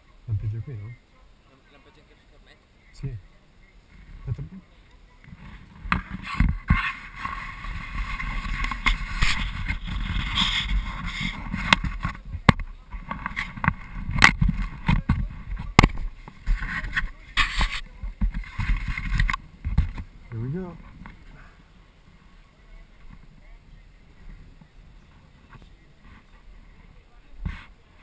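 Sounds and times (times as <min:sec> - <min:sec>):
wind rumbling on microphone: 0:05.2 - 0:27.8
camera handling noise: 0:05.8 - 0:15.1.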